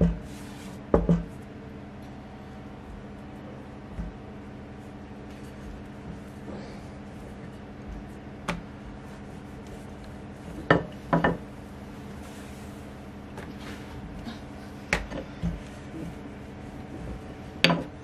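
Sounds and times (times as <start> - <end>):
steady low hum: 0.0 - 18.0
rolling pin knocking on board: 0.9 - 1.3, 10.6 - 11.4.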